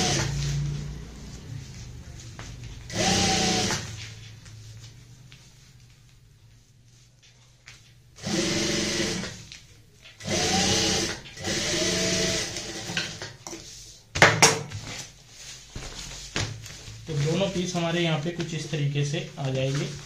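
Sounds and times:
sewing machine stitching: 0:00.0 - 0:00.5, 0:02.9 - 0:04.0, 0:08.2 - 0:09.4, 0:10.2 - 0:13.3
fabric rustling: 0:00.2 - 0:08.2, 0:13.6 - 0:20.0.

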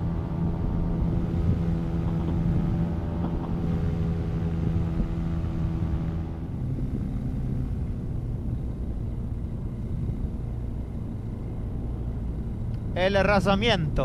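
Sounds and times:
paramotor engine running: 0:00.0 - 0:14.0
wind buffeting microphone: 0:00.0 - 0:14.0.

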